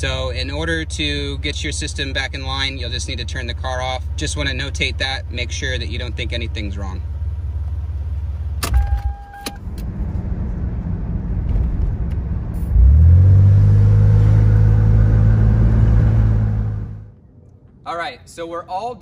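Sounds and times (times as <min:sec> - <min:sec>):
car engine idling: 0:00.0 - 0:13.0
car engine starting: 0:00.0 - 0:17.2
ignition key click: 0:08.6 - 0:09.9
brief electronic tone: 0:08.7 - 0:09.7.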